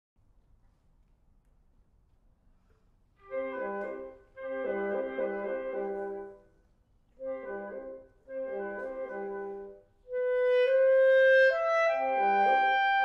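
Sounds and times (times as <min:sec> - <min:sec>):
clarinet: 0:03.2 - 0:13.0
woodwind quintet chamber music: 0:03.2 - 0:13.0.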